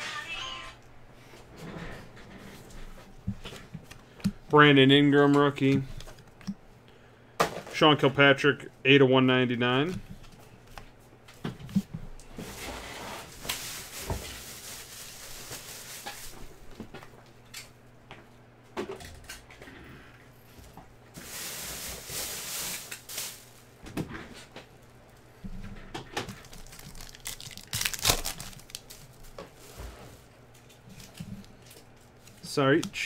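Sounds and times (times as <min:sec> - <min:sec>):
foil packs rustling and crinkling: 0:12.4 - 0:16.6, 0:21.2 - 0:23.7, 0:26.2 - 0:29.7.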